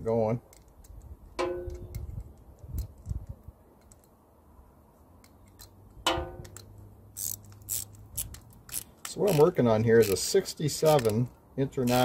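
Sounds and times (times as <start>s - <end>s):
ratchet metal clicks: 6.4s - 12.0s.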